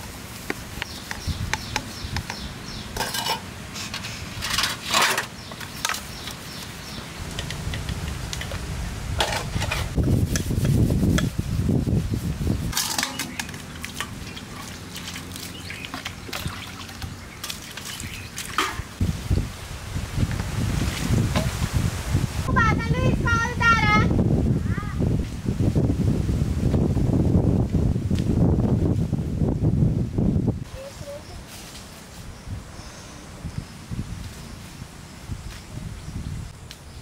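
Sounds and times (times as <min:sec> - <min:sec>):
metal dishes clinking: 0:03.0 - 0:03.5, 0:12.7 - 0:14.1
scrubbing inside a steel pot: 0:09.2 - 0:18.9.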